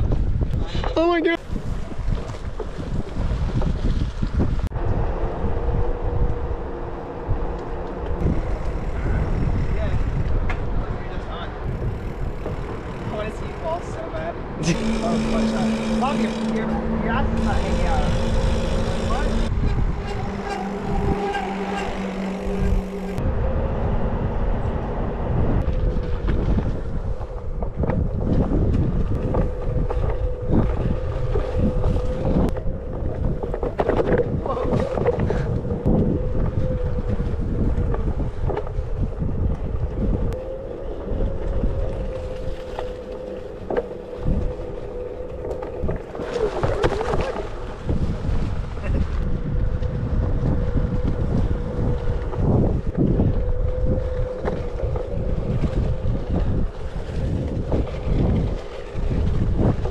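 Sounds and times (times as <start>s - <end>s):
wind buffeting microphone: 0.0s - 59.9s
high whine of hub motor: 4.7s - 46.2s
electric motor whine: 14.6s - 23.2s.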